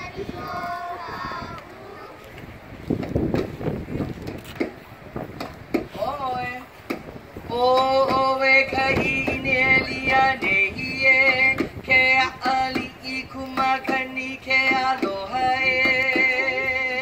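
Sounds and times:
singing on long held notes: 7.5s - 17.0s.

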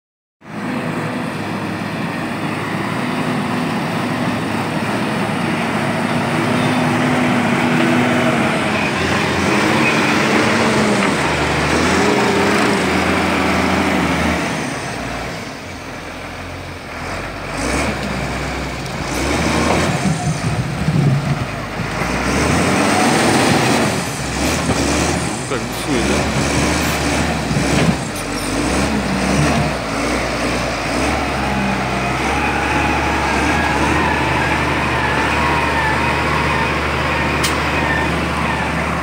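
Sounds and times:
diesel engine revving: 0.4s - 39.0s.

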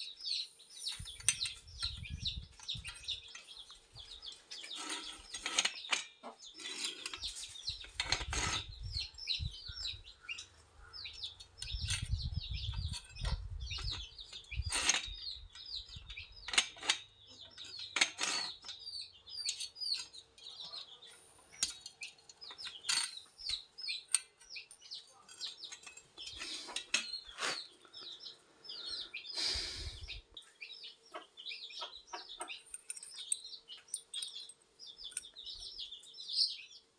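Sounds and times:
small birds chirping: 0.0s - 36.9s
metal clicks and knocks: 11.3s - 20.5s, 21.6s - 27.2s.

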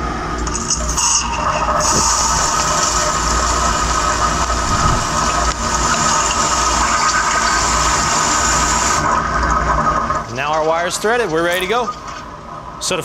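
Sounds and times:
machine pump running: 0.0s - 12.8s
water jet rushing: 0.6s - 11.9s.

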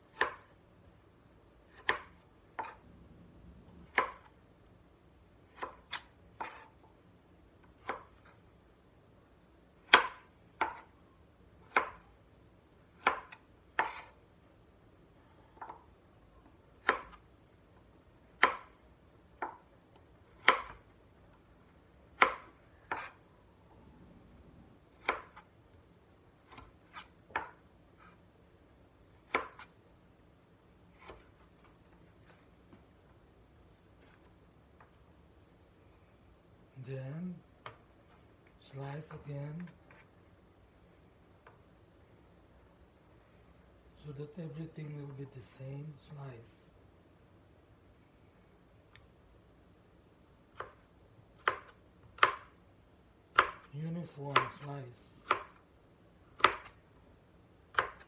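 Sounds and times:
knife chopping carrots: 0.0s - 0.6s, 1.6s - 2.9s, 3.7s - 4.3s, 5.4s - 6.8s, 7.6s - 8.4s, 9.8s - 11.0s, 11.6s - 12.1s, 12.9s - 14.2s, 16.7s - 17.2s, 18.3s - 20.9s, 22.1s - 23.2s, 24.9s - 25.5s, 26.4s - 28.2s, 29.2s - 29.8s, 30.9s - 32.4s, 51.4s - 52.6s, 53.3s - 55.6s, 56.3s - 56.8s, 57.7s - 58.0s.

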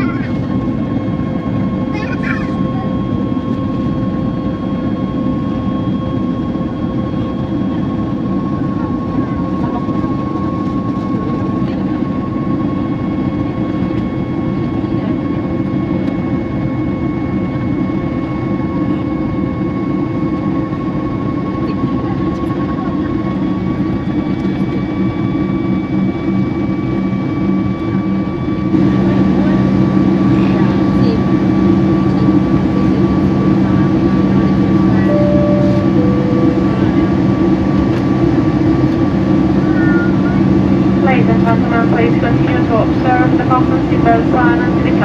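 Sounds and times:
engine and airflow roar: 0.0s - 45.0s
whining engine tones: 24.2s - 45.0s.

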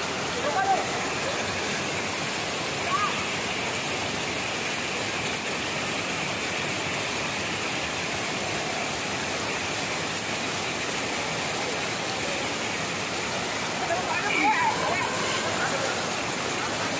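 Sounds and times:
water rushing over weir: 0.0s - 16.9s.

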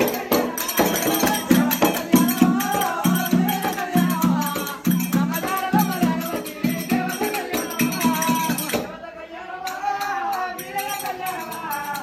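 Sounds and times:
person singing: 0.0s - 12.0s.

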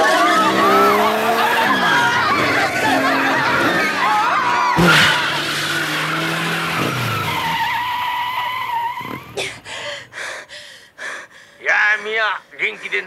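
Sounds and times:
car tyres screeching: 0.0s - 10.2s.

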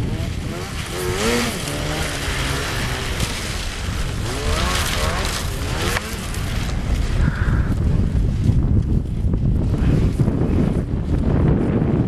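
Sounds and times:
snowmobile engine revving: 0.0s - 7.7s.

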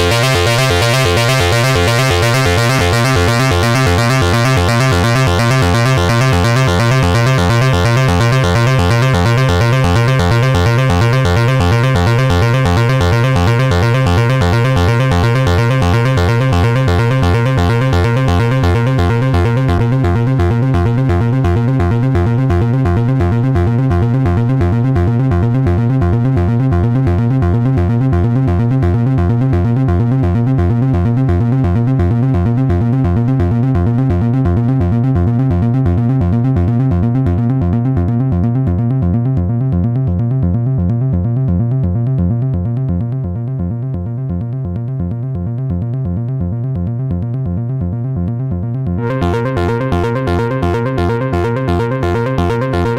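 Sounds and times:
synthesizer drone: 0.0s - 26.7s, 49.0s - 52.9s
synthesizer pulsing sequence: 0.0s - 26.8s, 49.0s - 52.9s.

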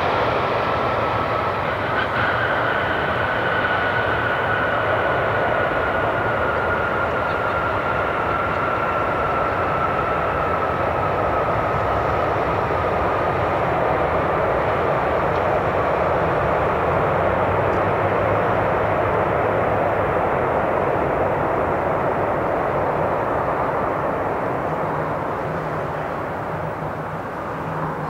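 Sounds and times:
jet engine roar with whine: 0.0s - 28.0s.

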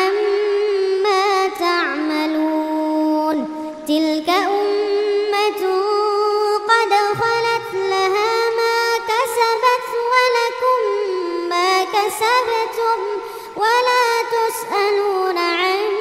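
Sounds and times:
person chanting verses: 6.9s - 8.6s.

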